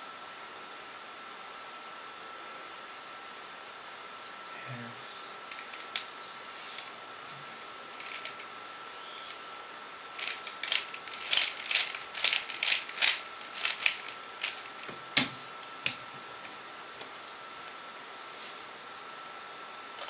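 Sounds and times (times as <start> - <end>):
puzzle cube plastic clicks: 8.0 - 8.5, 10.2 - 14.9.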